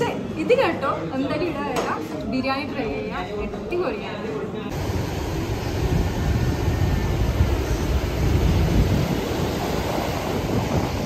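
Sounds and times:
wind rumble on microphone: 4.8s - 11.0s.

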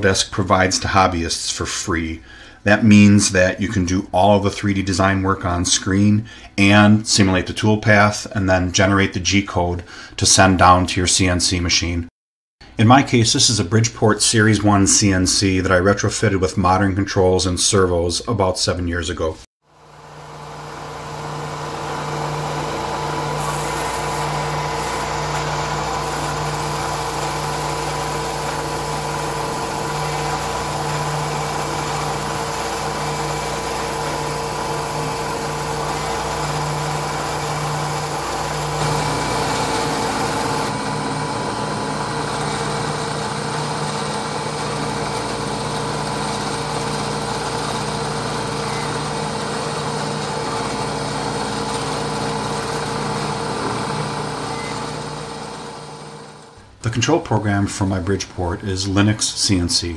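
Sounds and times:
milling machine cutting metal: 19.9s - 55.5s.

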